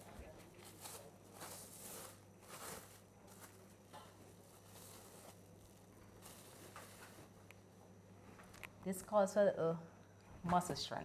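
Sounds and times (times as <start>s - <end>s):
plastic wrap crinkling: 0.3s - 7.8s.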